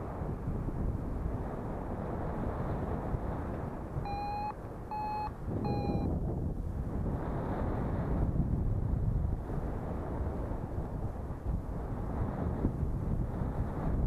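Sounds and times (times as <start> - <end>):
wind rushing over microphone: 0.0 - 14.0
variometer short beeps: 4.0 - 6.1.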